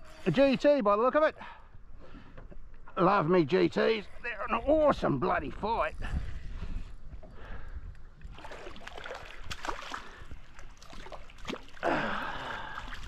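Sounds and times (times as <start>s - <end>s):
fish splashing and thrashing: 8.2s - 13.0s.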